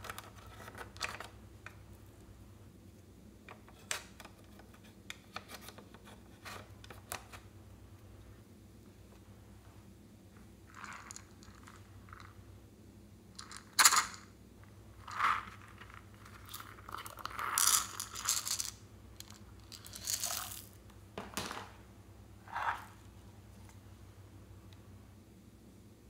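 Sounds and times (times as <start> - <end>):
beads rattling in plastic bottle: 10.7 - 12.3, 13.4 - 14.2, 15.0 - 20.8.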